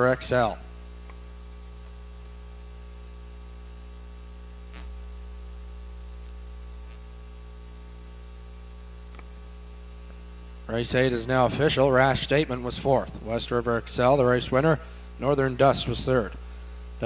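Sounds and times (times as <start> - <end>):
electrical mains hum: 0.0 - 17.0
faint click: 9.1 - 9.3.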